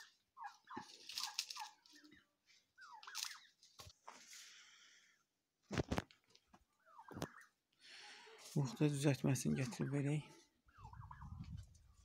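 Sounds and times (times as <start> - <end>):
turkeys calling: 0.0 - 4.0, 6.3 - 12.0
rustling: 0.5 - 2.1.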